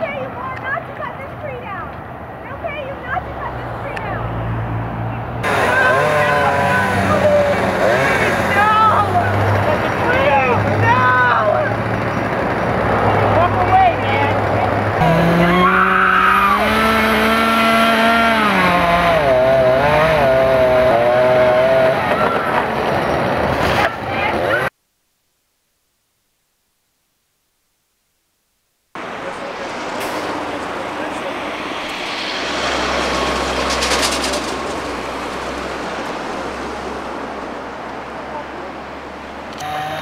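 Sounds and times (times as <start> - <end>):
vehicle engine rumble: 0.0 - 24.7, 29.0 - 40.0
road noise: 0.0 - 24.8, 28.9 - 40.0
chainsaw engine whining: 5.4 - 13.0, 15.0 - 22.9, 39.5 - 40.0.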